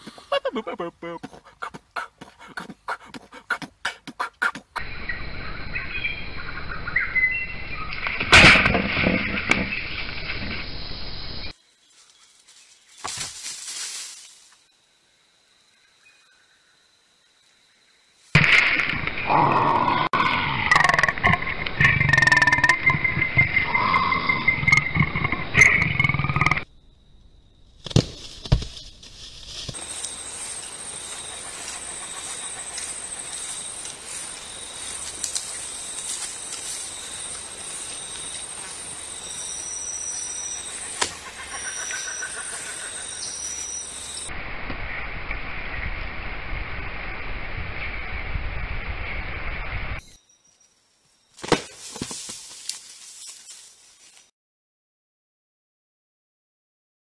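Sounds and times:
steady outdoor hiss: 0.0s - 54.3s.

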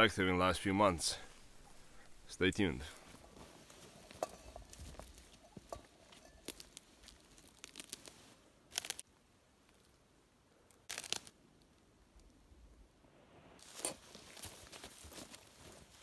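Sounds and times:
footsteps crunching on stony ground: 2.8s - 9.0s, 13.6s - 16.0s.

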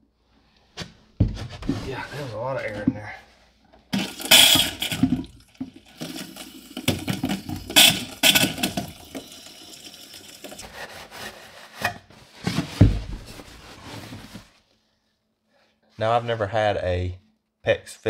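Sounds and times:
water spurting from pipe: 3.9s - 10.6s.

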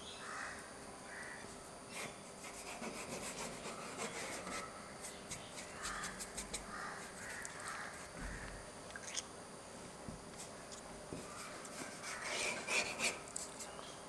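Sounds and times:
paintbrush scratching on paper: 1.9s - 8.1s, 11.3s - 13.7s.

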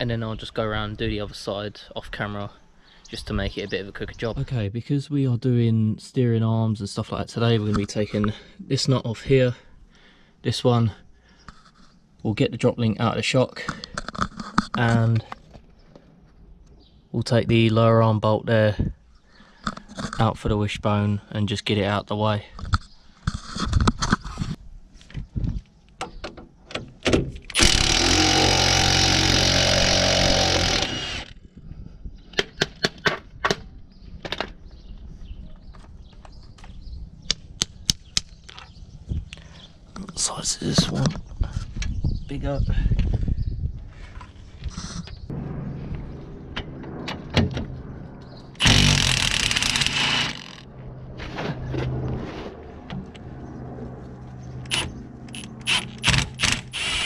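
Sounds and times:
low hum: 27.6s - 32.1s, 43.6s - 57.0s
impact wrench hammering: 48.6s - 50.6s
sharp metallic clicks: 48.6s - 50.7s, 54.6s - 57.0s.

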